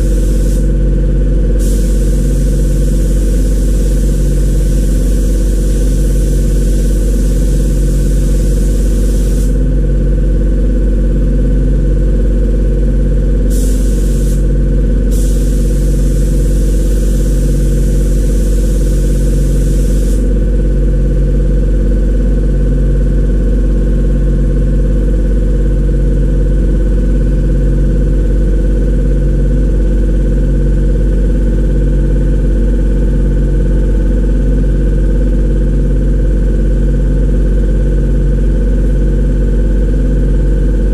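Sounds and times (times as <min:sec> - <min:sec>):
spray gun hissing: 0:00.0 - 0:00.7, 0:01.6 - 0:09.6, 0:13.5 - 0:14.5, 0:15.1 - 0:20.3
low pulsing machine drone: 0:00.0 - 0:40.9.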